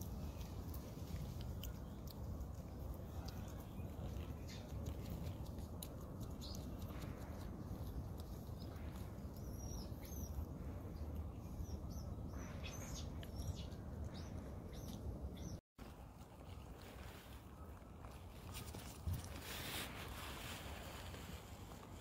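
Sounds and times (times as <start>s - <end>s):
small birds chirping: 0.0s - 15.6s
steady low rumble: 0.0s - 15.6s.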